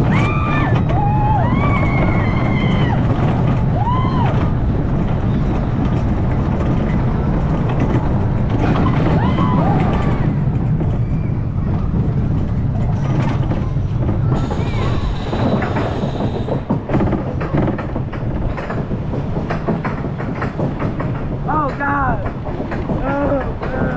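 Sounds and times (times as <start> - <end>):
riders whooping: 0.0 - 5.6, 8.5 - 12.0
roller coaster wheels rumbling: 0.0 - 23.9.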